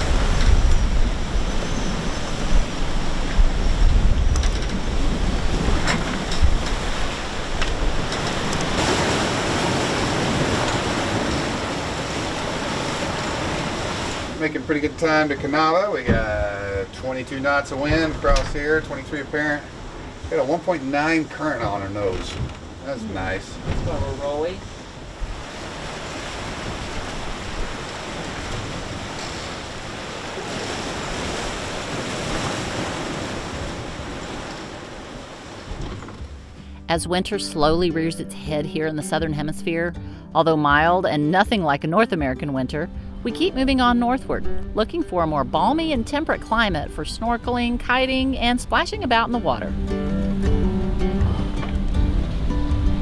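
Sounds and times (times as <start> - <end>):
wind buffeting microphone: 0.0 - 14.3
sea splashing along hull: 0.0 - 36.9, 44.4 - 53.0
rush of spray: 23.2 - 35.8.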